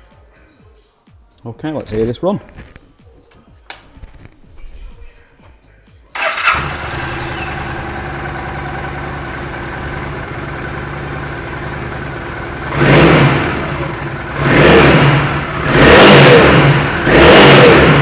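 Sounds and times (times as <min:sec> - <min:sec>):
motorcycle engine idling and revving: 0:06.2 - 0:18.0.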